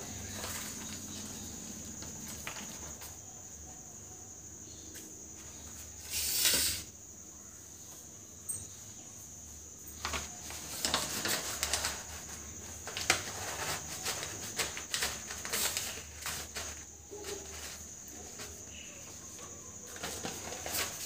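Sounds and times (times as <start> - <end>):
newspaper rustling and crackling: 0.0 - 3.1, 9.9 - 21.0.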